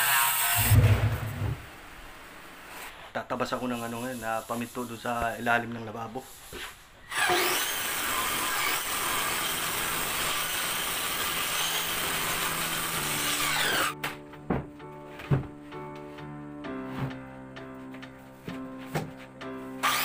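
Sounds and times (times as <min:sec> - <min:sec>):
circular saw cutting plywood: 0:00.0 - 0:01.2, 0:06.5 - 0:14.0, 0:19.8 - 0:20.0
wooden panel knocks: 0:14.5 - 0:15.6.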